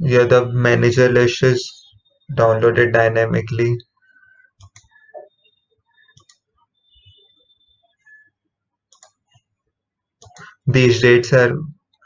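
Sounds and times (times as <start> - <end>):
computer mouse clicks: 4.6 - 5.0, 6.1 - 6.4, 8.9 - 9.5, 10.2 - 10.5.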